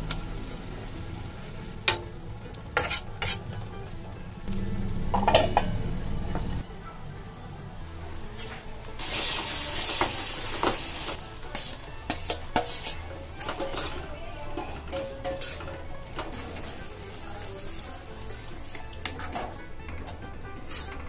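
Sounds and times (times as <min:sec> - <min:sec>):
food sizzling in hot oil: 0:00.0 - 0:03.5, 0:07.8 - 0:19.8
spatula scraping pan: 0:02.7 - 0:03.7, 0:08.2 - 0:16.8, 0:18.3 - 0:21.0.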